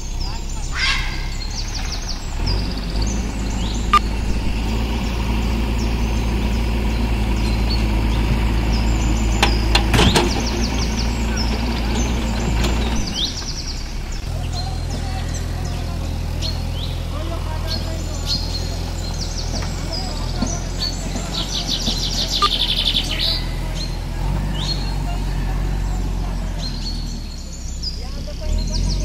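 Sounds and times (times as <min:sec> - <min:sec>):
diesel engines running under load: 0:00.0 - 0:29.0
small birds chirping: 0:00.0 - 0:29.0
sharp knocks: 0:09.4 - 0:11.7.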